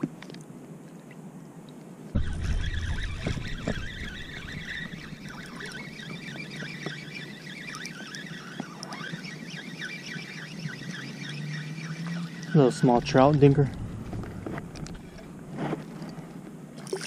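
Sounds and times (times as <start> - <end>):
wind rumble on microphone: 2.1 - 16.8
fishing reel drag buzzing: 2.2 - 15.4.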